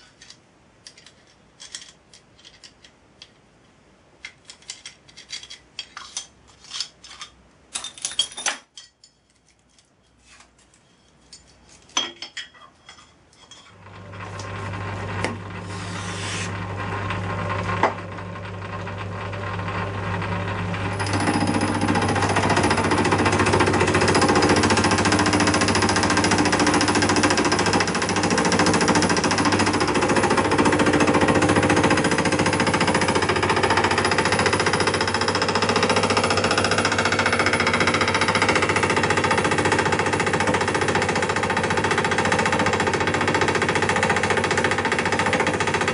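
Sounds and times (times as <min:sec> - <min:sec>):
lathe motor humming: 0:13.8 - 0:45.9
cutter machining aluminium: 0:20.6 - 0:45.9.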